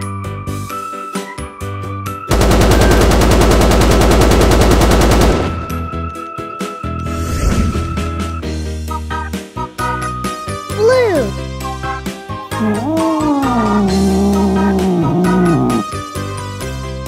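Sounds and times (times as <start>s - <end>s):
cheerful background music: 0.0s - 2.3s, 5.5s - 17.0s
rapid machine-gun fire: 2.3s - 5.8s.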